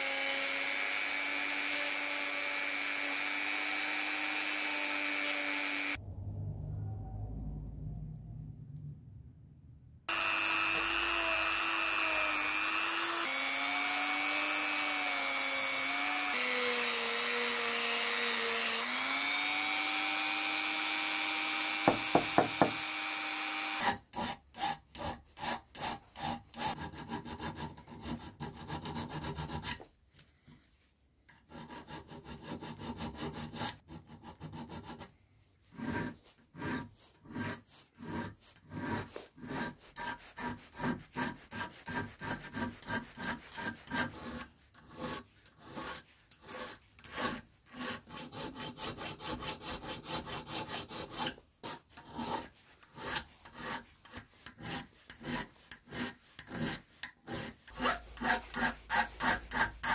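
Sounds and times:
rotary tool whirring: 10.1 - 19.4
hand file rasping on steel: 10.1 - 19.9, 21.8 - 22.8, 23.8 - 29.9, 31.3 - 59.9.

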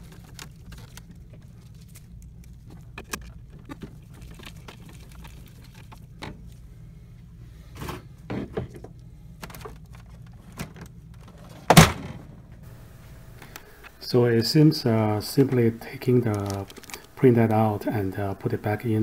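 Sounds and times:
printer cover thunk shut: 11.7 - 12.2.

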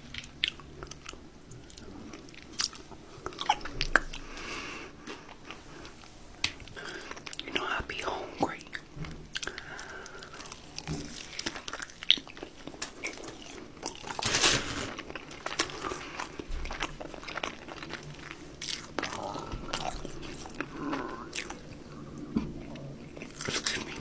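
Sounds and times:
biting and chewing fried chicken: 0.0 - 7.6, 8.6 - 24.0
breading crunching: 8.6 - 24.0.

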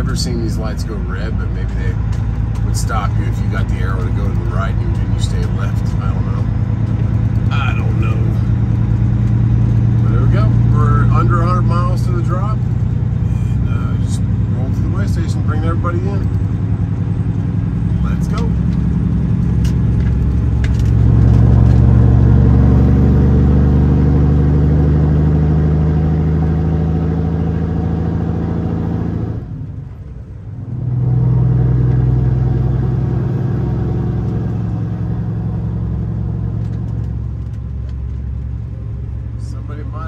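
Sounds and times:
truck diesel engine accelerating: 0.0 - 40.0.

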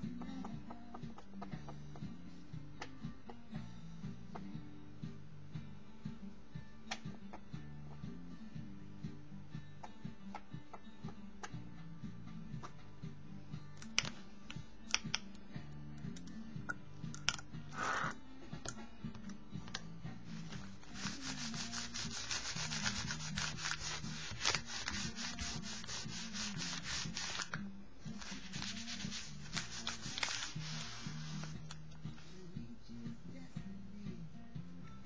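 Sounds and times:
quiet background music: 0.0 - 35.0
paper towel rubbing on paper: 20.3 - 27.5, 28.2 - 31.6
paper swish: 20.4 - 27.5, 28.2 - 31.6.

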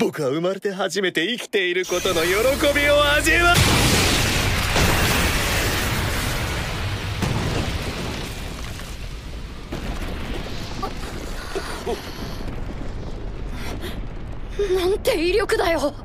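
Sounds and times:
deep explosion rumble: 2.0 - 16.0.

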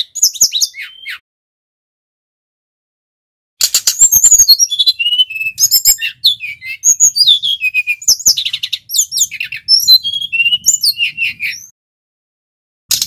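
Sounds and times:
bird singing whistled trills: 0.0 - 1.2, 3.6 - 11.7.

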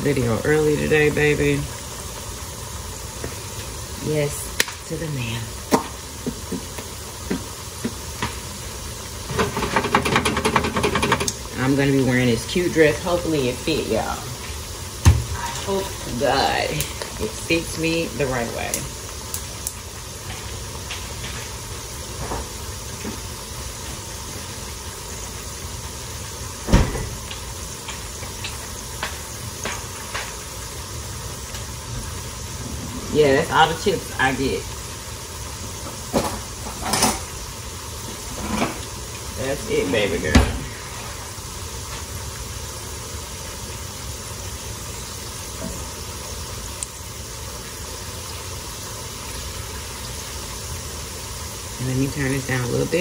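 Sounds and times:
tortilla sizzling in oil: 0.0 - 53.0
loud thump: 15.0 - 15.4, 26.7 - 27.2.

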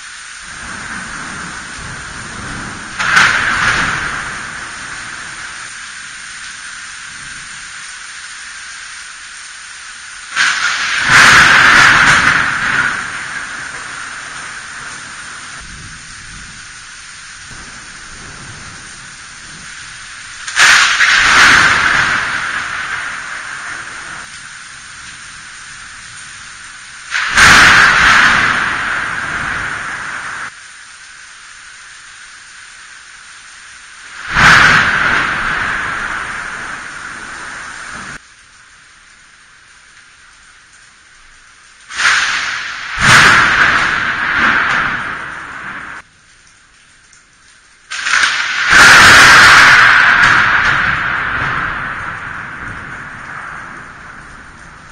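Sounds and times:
thunder crack and rumble: 0.0 - 8.0, 10.2 - 30.6, 34.0 - 38.2, 41.9 - 46.1, 47.9 - 54.9
rain hissing: 0.0 - 54.9.

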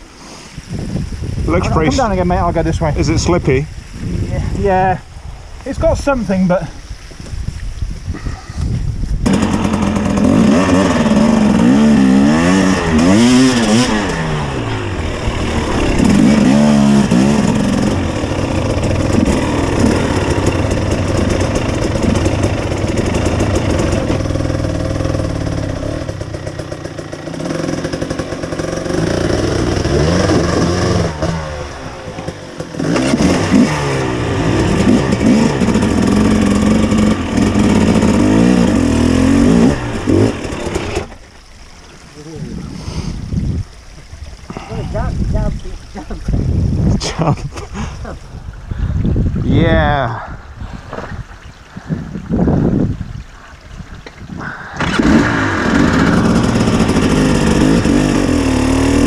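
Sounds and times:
motorcycle engine revving: 9.2 - 41.3, 54.4 - 59.0.

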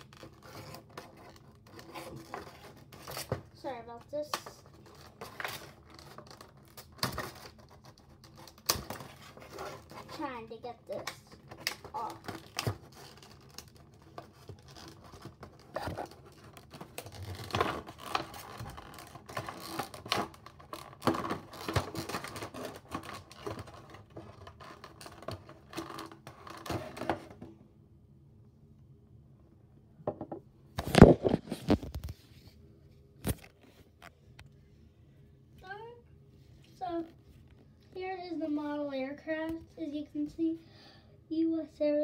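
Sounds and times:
packaging scratching and tearing: 0.0 - 3.4, 4.7 - 10.2, 10.9 - 27.1.

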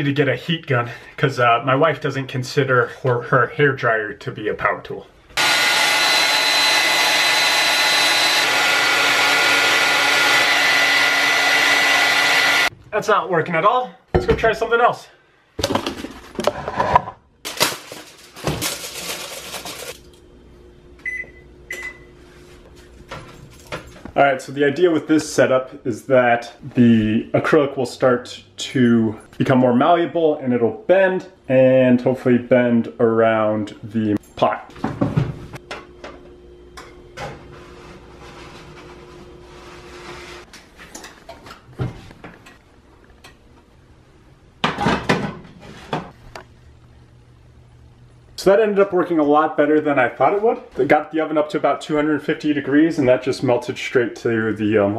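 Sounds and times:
kitchen items rustling and clattering: 15.6 - 20.2, 22.2 - 24.2, 34.2 - 36.3, 36.9 - 43.3, 44.6 - 46.3
oven control panel beep: 21.0 - 22.1.

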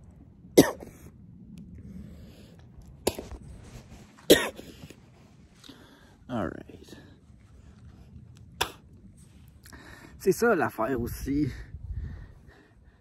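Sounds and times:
man coughing: 0.6 - 0.9, 4.3 - 4.8.

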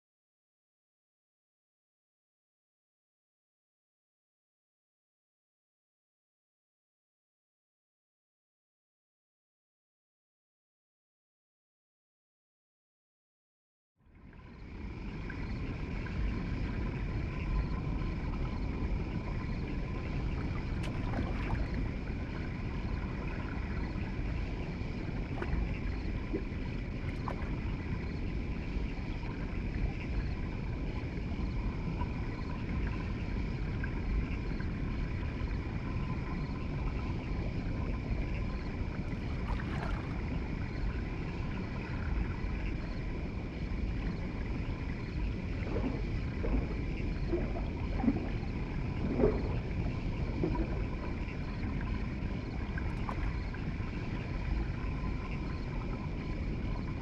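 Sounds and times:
faint steady hum: 14.0 - 57.0
low rumbling aquarium water: 14.0 - 57.0.

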